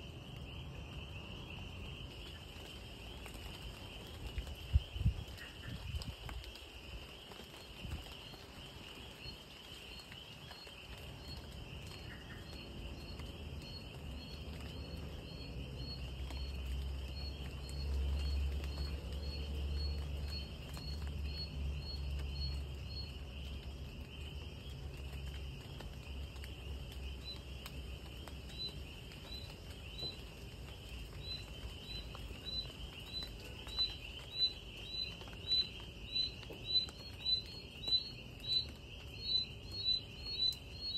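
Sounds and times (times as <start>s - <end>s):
insect chirping: 0.0s - 40.9s
insects trilling: 0.0s - 40.9s.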